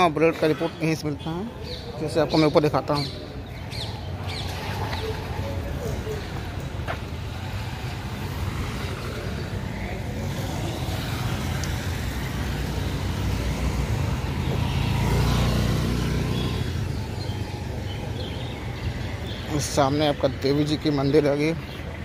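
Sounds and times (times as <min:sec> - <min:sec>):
road traffic noise: 0:00.0 - 0:22.0
motor scooter engine passing: 0:03.7 - 0:19.3.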